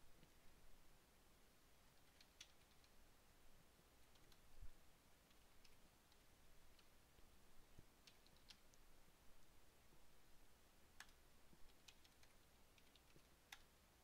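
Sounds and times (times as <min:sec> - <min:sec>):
computer keyboard clicks: 0:02.0 - 0:03.0, 0:04.0 - 0:04.4, 0:08.0 - 0:08.8, 0:11.0 - 0:13.7.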